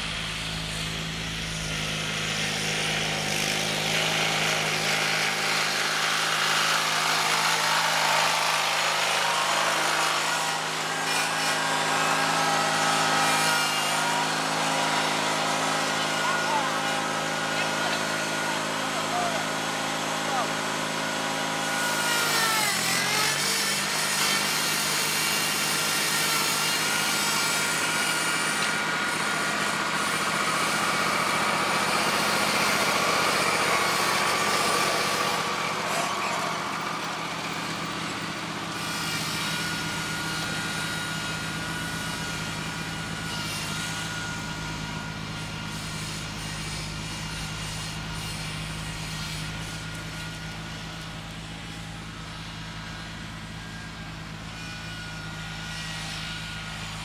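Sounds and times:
tractor engine whine: 0.0 - 57.0.

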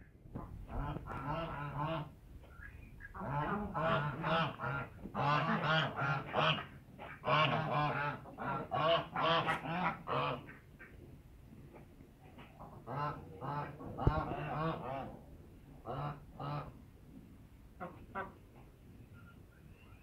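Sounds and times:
geese honking: 0.7 - 11.0.

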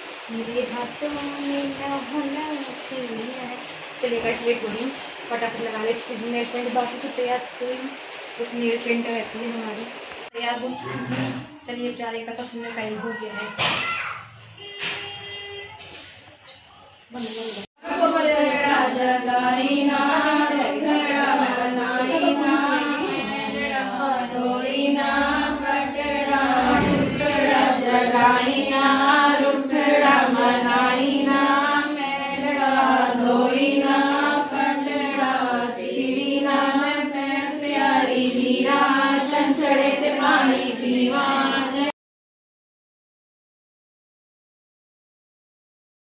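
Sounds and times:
steady held drone: 17.2 - 41.9
women singing chant-like melody: 17.8 - 41.9.

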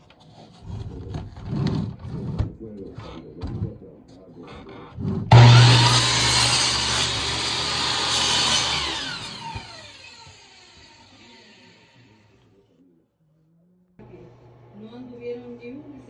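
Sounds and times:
power tool motor humming: 5.3 - 12.2.

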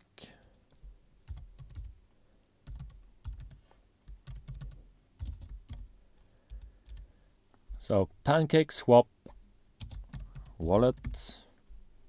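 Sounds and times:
computer keyboard typing: 0.4 - 2.0, 2.6 - 7.1, 9.8 - 11.3.

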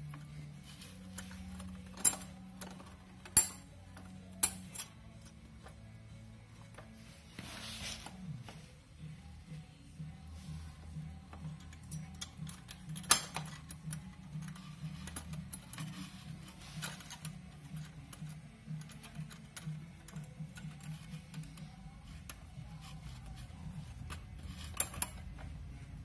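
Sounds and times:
metal parts clicking and rattling: 0.0 - 5.9, 11.2 - 25.8.

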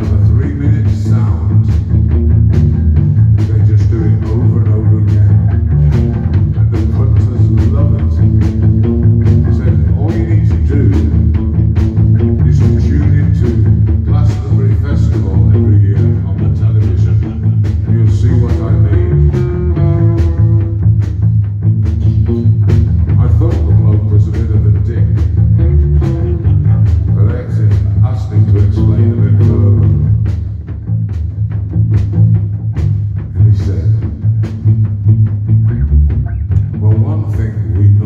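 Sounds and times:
man singing: 0.0 - 1.8, 3.4 - 8.5, 9.2 - 11.6, 12.2 - 20.7, 22.0 - 30.4, 33.3 - 34.2, 36.7 - 38.0
drum kit beat: 0.0 - 38.0
electric guitars: 0.0 - 38.0.

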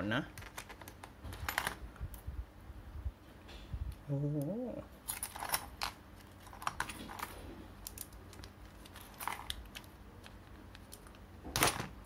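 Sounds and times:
small parts clicking and tapping: 5.0 - 11.8.

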